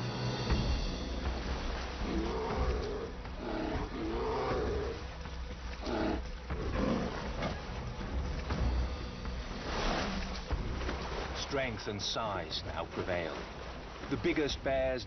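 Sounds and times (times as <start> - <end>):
river water rushing: 0.0 - 15.0
bears roaring and growling: 2.0 - 5.1, 5.8 - 7.8.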